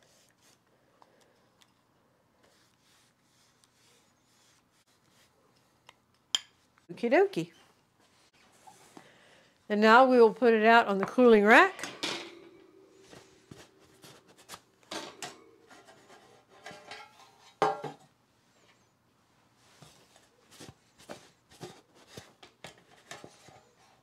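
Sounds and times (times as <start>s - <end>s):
pans scraping: 11.1s - 18.0s
metal pans knocking on countertop: 17.6s - 18.0s.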